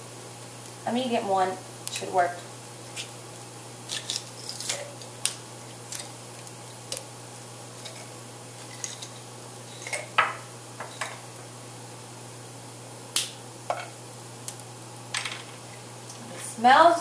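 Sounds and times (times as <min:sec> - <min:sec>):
steady low hum: 0:00.0 - 0:17.0
kitchen items clattering: 0:07.8 - 0:11.2.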